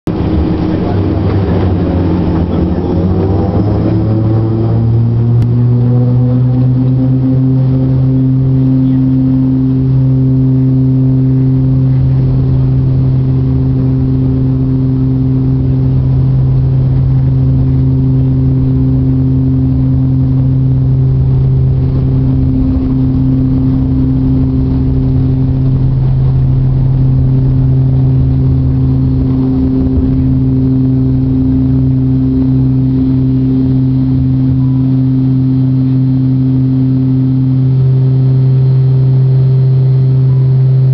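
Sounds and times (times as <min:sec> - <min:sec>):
turboprop propeller drone: 0:00.0 - 0:40.9.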